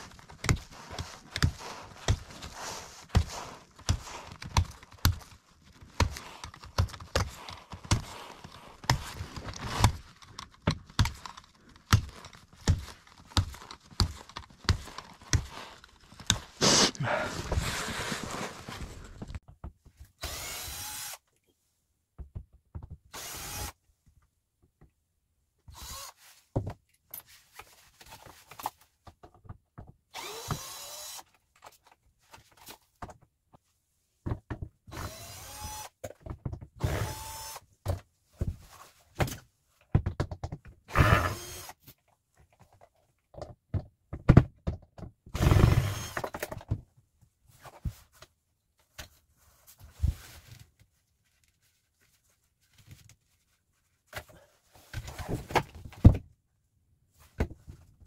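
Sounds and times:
power drill whirring: 20.2s - 21.2s, 23.1s - 23.8s, 25.7s - 26.2s, 30.1s - 31.2s, 34.9s - 35.9s, 36.8s - 37.6s, 40.9s - 41.8s, 45.4s - 46.4s
wooden knocks and thunks: 39.2s - 40.8s, 43.4s - 45.2s.

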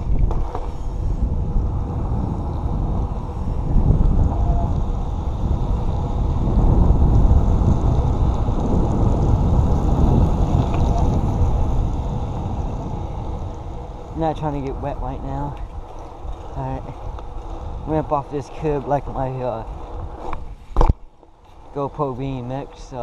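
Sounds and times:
tyre noise on wet road: 0.0s - 23.0s
wind buffeting microphone: 0.0s - 23.0s.

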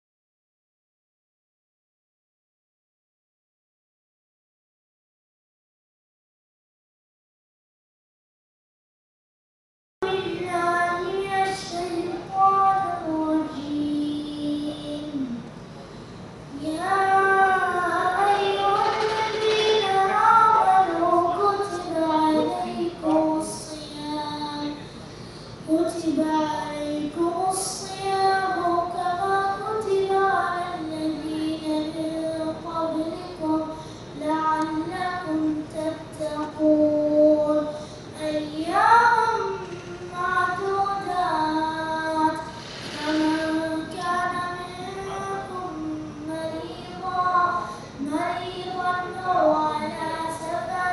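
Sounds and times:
boy chanting: 10.0s - 15.5s, 16.5s - 25.0s, 25.6s - 50.9s.

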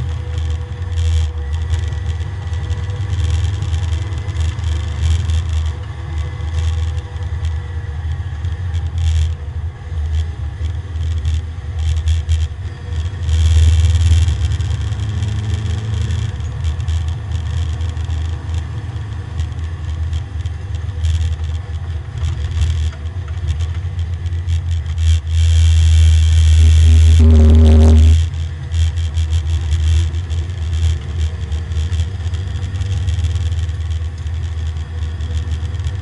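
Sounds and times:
race car engine droning: 0.0s - 36.0s
clicks and rattles: 10.0s - 36.0s.

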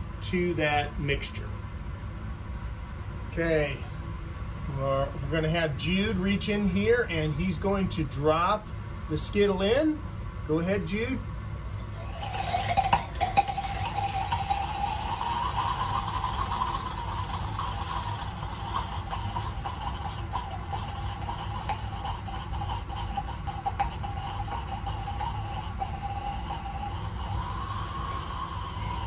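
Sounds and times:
whistling scream: 24.9s - 29.0s.

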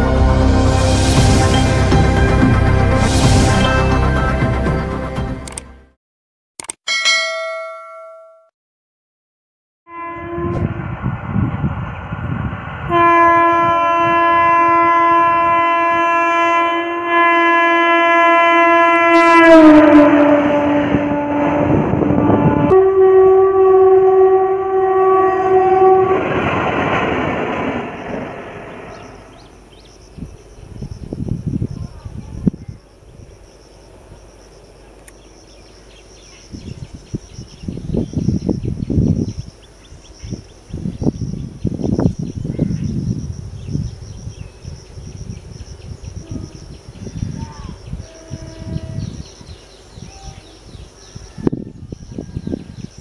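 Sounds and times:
low train rumble: 0.0s - 5.5s, 9.9s - 53.0s
train horn blast: 9.9s - 11.1s, 12.8s - 27.0s, 46.2s - 46.7s, 47.4s - 49.3s
insects chirring: 27.9s - 51.3s.

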